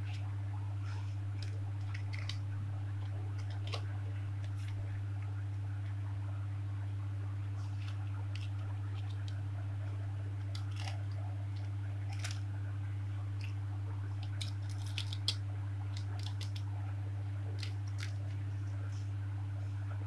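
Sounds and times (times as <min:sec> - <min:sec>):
steady low hum: 0:00.0 - 0:20.0
paper rustling: 0:14.2 - 0:15.4.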